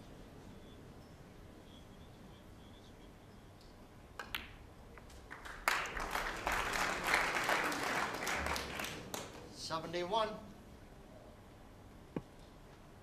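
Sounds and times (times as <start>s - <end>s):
audience applause: 5.3s - 9.5s.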